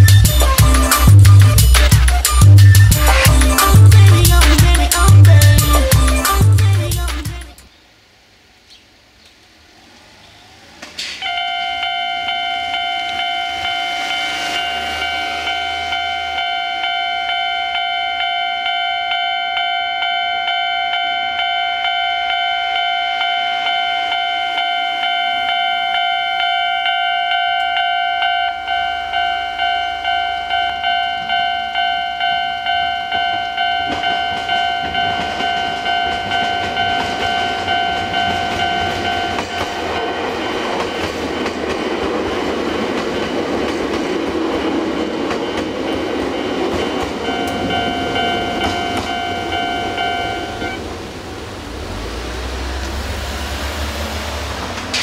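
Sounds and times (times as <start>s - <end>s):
passing train rumble: 0.0s - 7.6s, 9.5s - 55.0s
level-crossing electronic bell: 11.2s - 41.9s, 44.4s - 50.8s.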